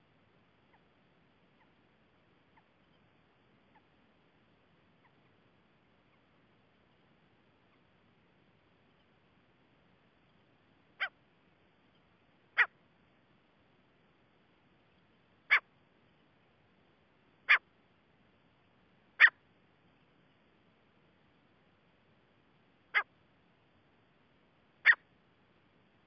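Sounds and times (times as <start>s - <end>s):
francolin calls: 0.6s - 9.2s, 10.1s - 11.2s, 14.8s - 15.7s, 17.4s - 17.7s, 19.1s - 19.4s, 24.8s - 25.1s.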